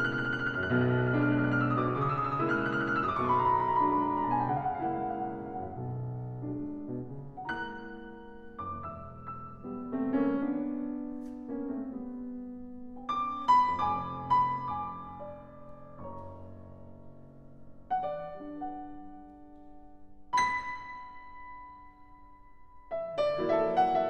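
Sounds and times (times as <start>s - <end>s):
slow piano melody: 0.0s - 24.0s.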